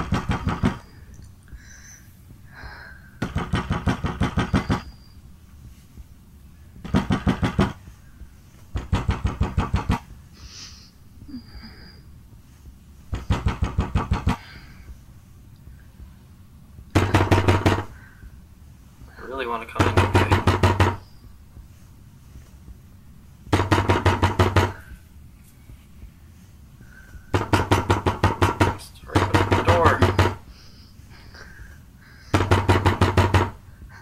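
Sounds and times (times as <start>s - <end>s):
fist pounding on door: 0.0s - 0.9s, 3.2s - 5.0s, 6.8s - 7.8s, 8.7s - 10.1s, 13.1s - 14.6s, 16.9s - 18.0s, 19.7s - 21.0s, 23.5s - 24.9s, 27.3s - 30.4s, 32.3s - 33.6s.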